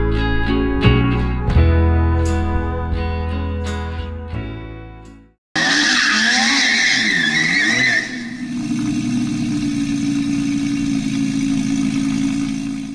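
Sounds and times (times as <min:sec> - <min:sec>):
tyres squealing: 0:05.6 - 0:08.6
car engine running: 0:05.6 - 0:12.9.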